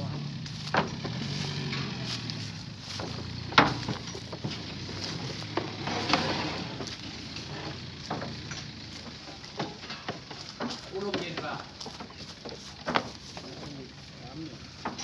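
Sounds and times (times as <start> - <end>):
knocks and clatter: 0.0 - 13.9, 14.7 - 15.0.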